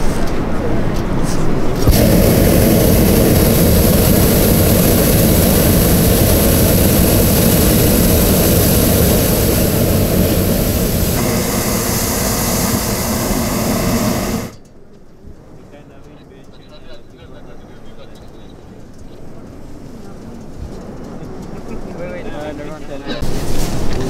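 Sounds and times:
propane burner blast: 0:01.6 - 0:14.6.

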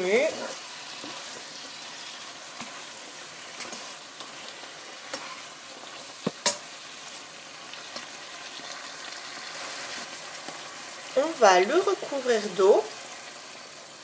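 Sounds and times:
food sizzling in a pot: 0:00.0 - 0:14.0.

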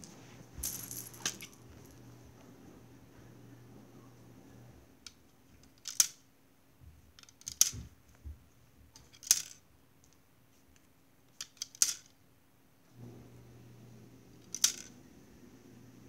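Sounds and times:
low steady hum: 0:00.0 - 0:11.4, 0:12.2 - 0:16.0.

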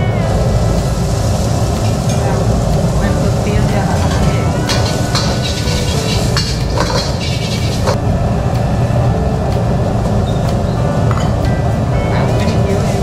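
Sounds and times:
gas wok burner rushing: 0:00.4 - 0:08.0
metal clinks and scrapes in wok: 0:03.9 - 0:08.0.

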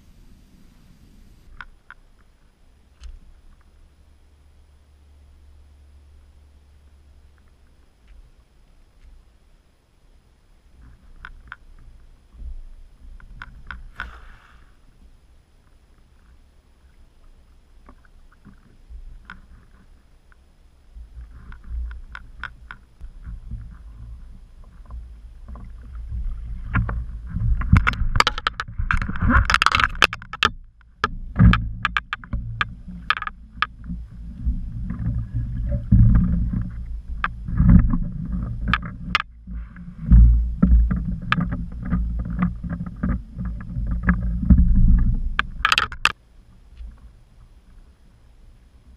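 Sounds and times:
low rumble: 0:00.0 - 0:48.9
sharp knocks against a hull: 0:24.7 - 0:46.2.

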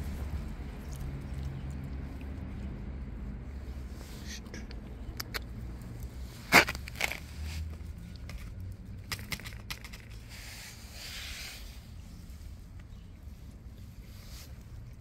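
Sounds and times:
scraping rustle: 0:09.4 - 0:12.8.

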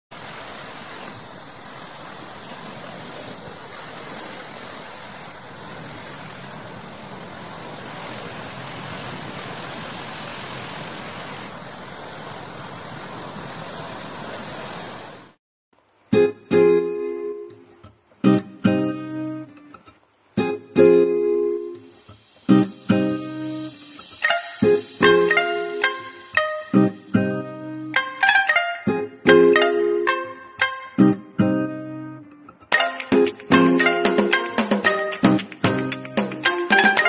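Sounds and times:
ocean surf washing: 0:00.1 - 0:31.4, 0:32.7 - 0:37.0
acoustic guitar strums: 0:16.1 - 0:32.0, 0:32.7 - 0:37.0.

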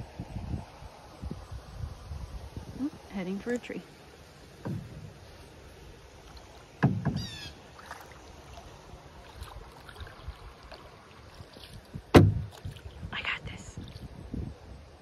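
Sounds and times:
hollow knock on canoe hull: 0:04.6 - 0:05.2, 0:06.8 - 0:07.4, 0:12.1 - 0:12.8
bird call of falling chirps: 0:07.2 - 0:07.6.

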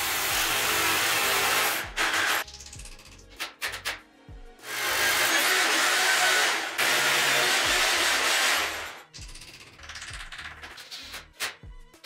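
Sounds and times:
power tool cutting into wall: 0:00.0 - 0:02.5, 0:04.6 - 0:09.0.

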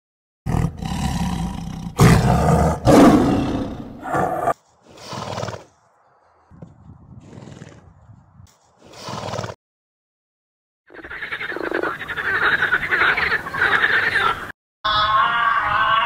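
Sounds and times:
tiger roaring: 0:00.5 - 0:05.7.

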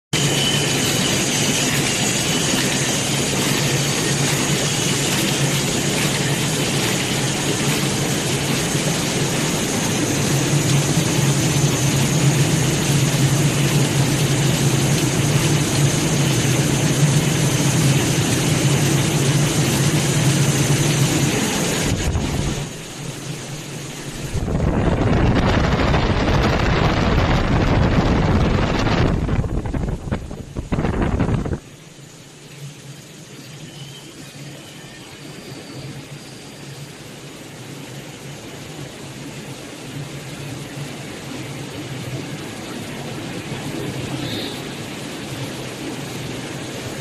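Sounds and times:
factory machines running: 0:00.2 - 0:28.8.

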